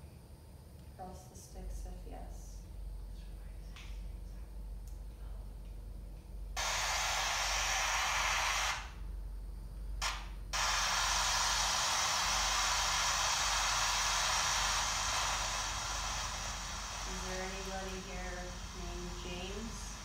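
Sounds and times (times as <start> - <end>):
radio static hiss: 6.6 - 9.0, 10.0 - 20.0.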